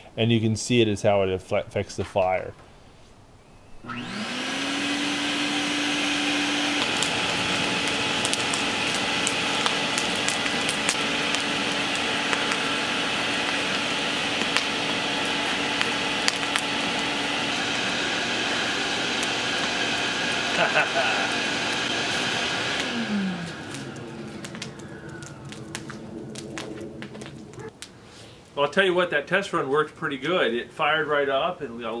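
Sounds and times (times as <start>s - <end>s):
burning wood crackling: 1.8s - 32.0s
electric air blower whine: 3.7s - 27.6s.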